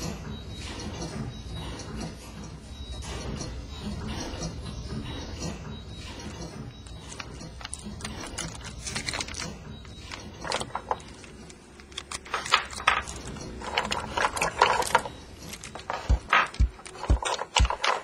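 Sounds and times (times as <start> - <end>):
mechanical clicking and clattering: 6.6 - 18.0.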